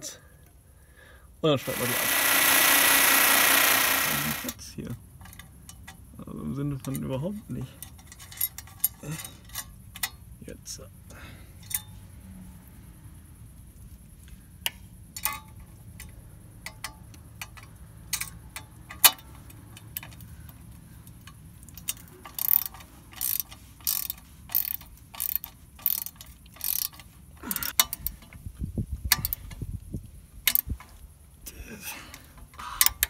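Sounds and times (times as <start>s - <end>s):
ratchet clicking: 1.6s - 4.6s, 14.6s - 28.4s, 29.0s - 29.6s, 30.4s - 30.9s, 32.5s - 33.0s
metal clicks: 14.6s - 28.4s.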